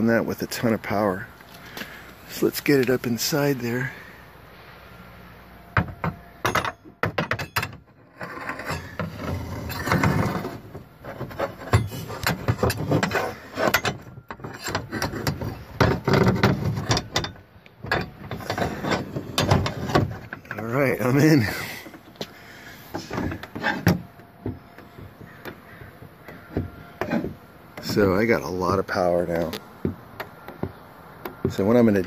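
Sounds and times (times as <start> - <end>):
metal rod scraping and knocking: 5.7 - 22.3, 22.9 - 28.2.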